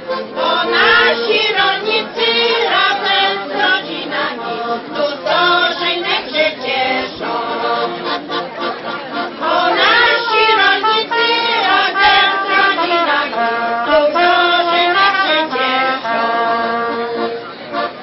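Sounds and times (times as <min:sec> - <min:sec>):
women's choir singing: 0:00.1 - 0:08.4, 0:09.1 - 0:17.2
trumpet: 0:09.4 - 0:18.0.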